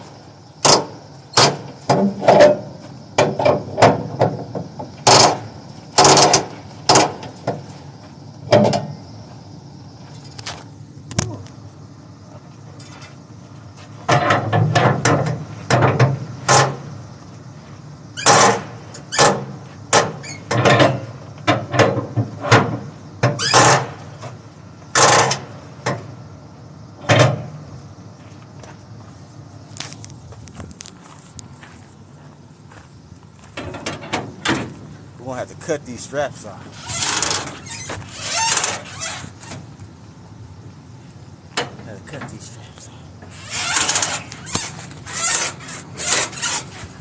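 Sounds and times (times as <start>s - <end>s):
strap winch clicking and clanking: 5.0s - 7.6s, 24.9s - 26.0s, 36.7s - 39.6s, 43.2s - 46.9s.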